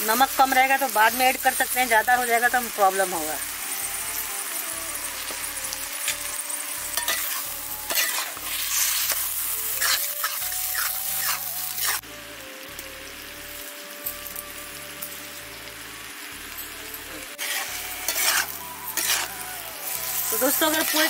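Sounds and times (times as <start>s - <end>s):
vegetables sizzling in pan: 0.0s - 21.0s
metal spatula scraping pan: 6.9s - 12.0s, 17.3s - 19.4s.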